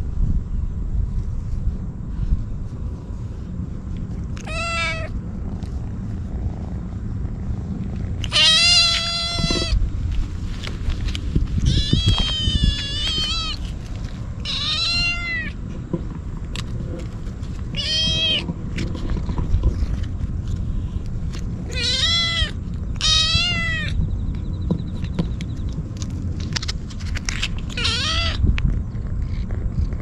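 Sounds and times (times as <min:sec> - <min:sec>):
steady low rumble: 0:00.0 - 0:30.0
kitten meowing loudly: 0:04.4 - 0:05.1, 0:08.2 - 0:09.8, 0:11.6 - 0:13.7, 0:14.4 - 0:15.6, 0:21.7 - 0:24.0, 0:27.8 - 0:28.4.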